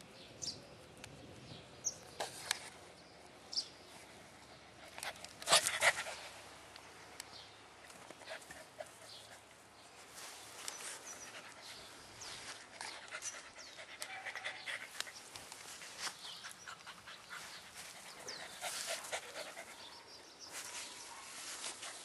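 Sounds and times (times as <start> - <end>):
puppy panting: 16.2 - 20.3.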